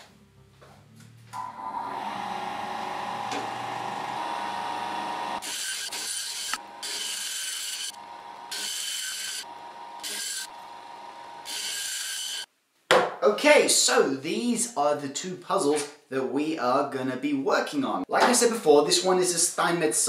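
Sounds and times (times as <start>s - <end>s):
bandsaw humming: 1.4s - 12.5s.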